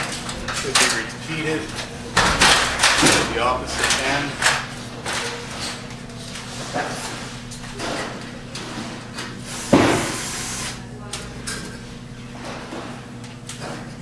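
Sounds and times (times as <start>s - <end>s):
steady low hum: 0.0s - 14.0s
loud metal clank: 2.1s - 4.7s.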